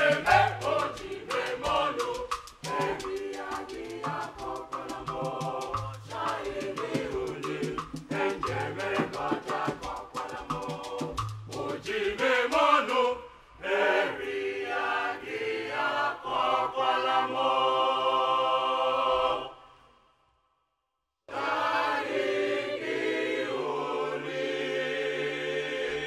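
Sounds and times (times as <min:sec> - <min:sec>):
mixed choir singing: 0:00.0 - 0:19.7, 0:21.3 - 0:26.0.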